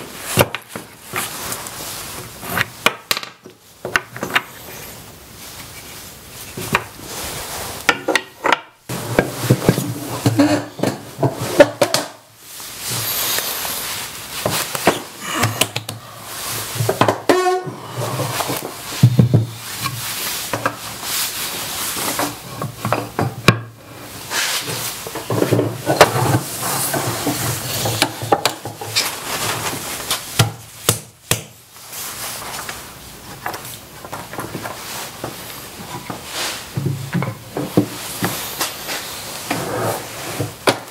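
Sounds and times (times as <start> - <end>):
wood knocking and scraping on wood: 6.5 - 7.0, 16.8 - 20.8, 24.7 - 29.1, 33.3 - 38.4.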